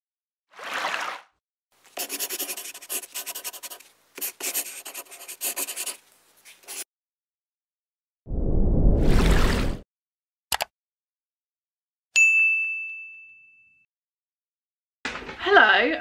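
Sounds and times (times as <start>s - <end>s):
scratchy pen strokes: 2.0s - 6.9s.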